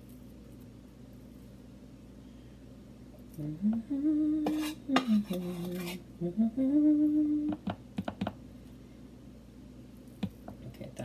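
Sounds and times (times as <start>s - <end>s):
person humming: 3.3s - 7.8s
spoon scraping dough in metal tin: 4.4s - 6.0s.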